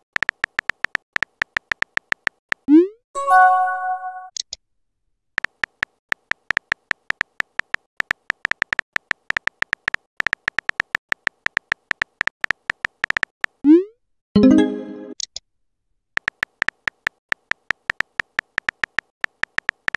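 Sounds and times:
phone keyboard clicks: 0:00.1 - 0:02.6, 0:05.4 - 0:13.6, 0:16.2 - 0:19.9.

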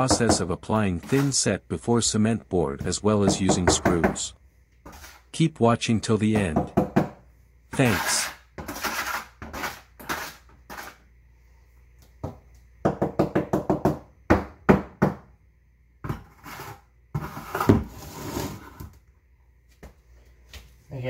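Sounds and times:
trowel knocking on plastic bucket: 0:02.8 - 0:04.2
trowel scraping in bucket: 0:04.8 - 0:05.3, 0:07.8 - 0:11.0, 0:16.2 - 0:18.8.

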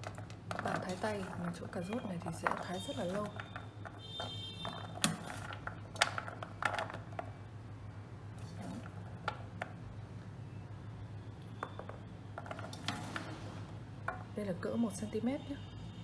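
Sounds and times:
carrot cubes clicking on metal tray: 0:00.0 - 0:07.4.

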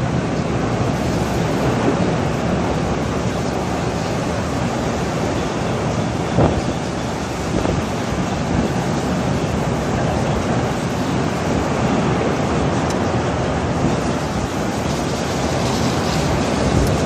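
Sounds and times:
strong wind on microphone: 0:00.0 - 0:17.0.

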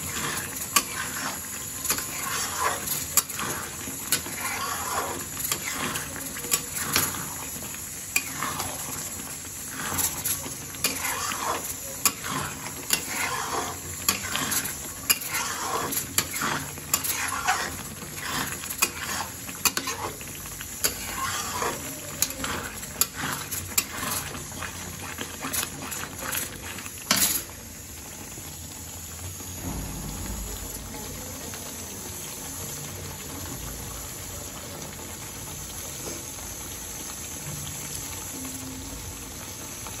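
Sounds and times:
metal spatula scraping pan: 0:00.0 - 0:07.5, 0:08.1 - 0:27.5
gravy bubbling: 0:00.0 - 0:40.0.

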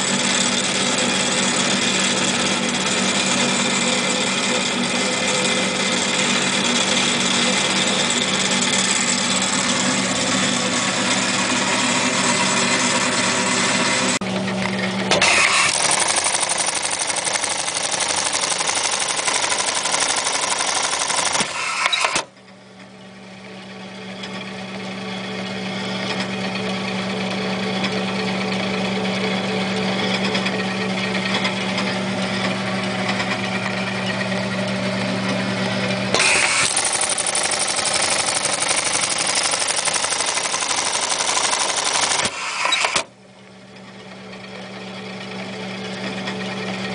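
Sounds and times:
sewing machine mechanical rattle: 0:00.0 - 0:13.9, 0:14.6 - 0:22.3, 0:36.1 - 0:43.1
motor humming: 0:00.0 - 0:27.3, 0:29.6 - 0:46.9.

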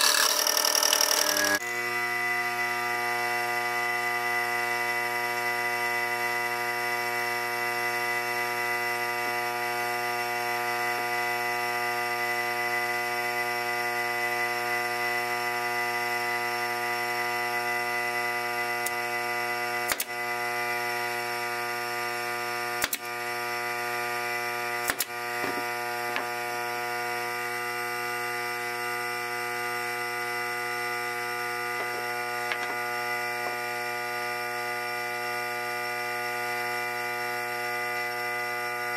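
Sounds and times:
nail gun firing into plywood: 0:19.9 - 0:20.2, 0:22.8 - 0:23.1, 0:24.8 - 0:25.1.

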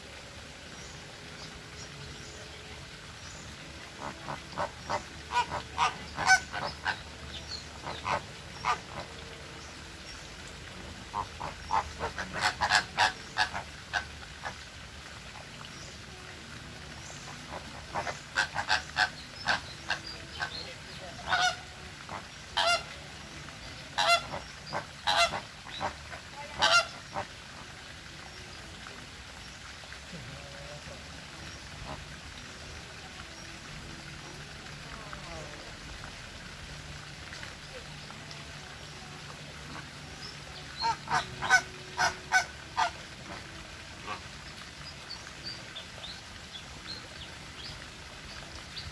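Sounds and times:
flamingos honking: 0:03.6 - 0:09.8, 0:10.8 - 0:14.6, 0:17.0 - 0:28.4, 0:30.3 - 0:32.4, 0:36.6 - 0:46.2.

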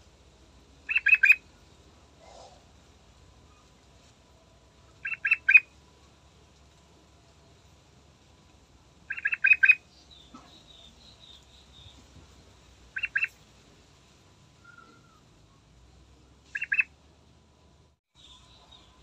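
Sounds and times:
bird calling clear notes: 0:00.9 - 0:01.4, 0:05.0 - 0:05.7, 0:09.1 - 0:12.0, 0:13.0 - 0:13.4, 0:14.6 - 0:15.3, 0:16.5 - 0:16.9
faint high bird chirps: 0:00.9 - 0:01.4, 0:05.0 - 0:05.7, 0:09.1 - 0:12.1, 0:13.0 - 0:13.4, 0:14.6 - 0:15.6, 0:16.4 - 0:16.9, 0:18.1 - 0:19.0.

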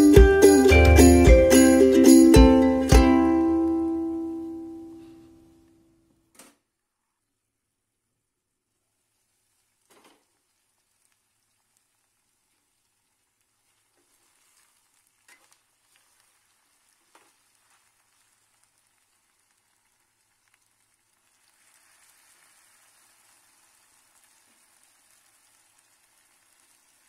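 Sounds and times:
curry sizzling in a wok: 0:08.9 - 0:27.0.

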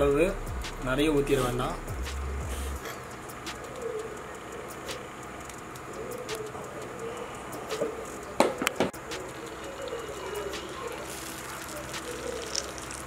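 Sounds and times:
hot pan crackling and ticking: 0:00.0 - 0:13.0
sharp clicks: 0:02.8 - 0:13.0.

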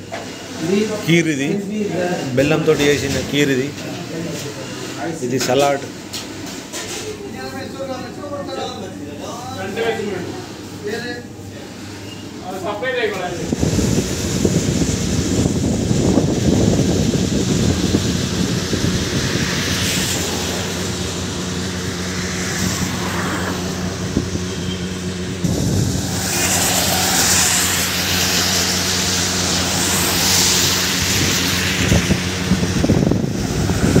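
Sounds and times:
wind and road noise: 0:13.2 - 0:34.0
engine hum: 0:13.3 - 0:34.0.

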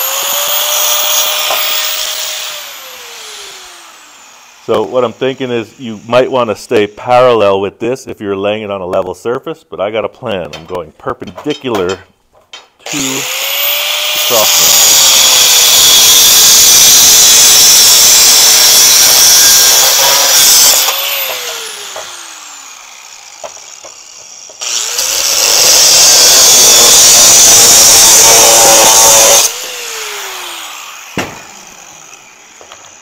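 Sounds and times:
angle grinder cutting steel: 0:00.0 - 0:07.5, 0:12.8 - 0:33.0
single knock: 0:31.2 - 0:31.5.

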